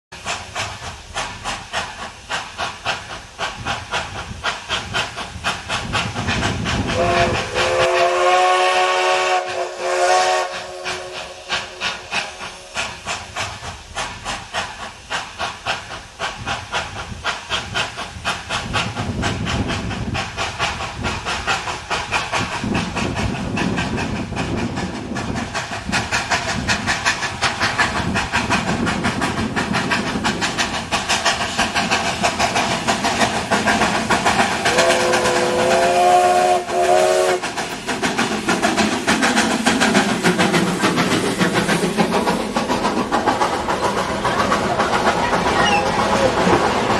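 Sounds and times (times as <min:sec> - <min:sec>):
steam locomotive chuffing: 0:00.1 - 0:46.9
locomotive whistle blast: 0:06.9 - 0:11.9, 0:34.7 - 0:37.4, 0:45.5 - 0:46.3.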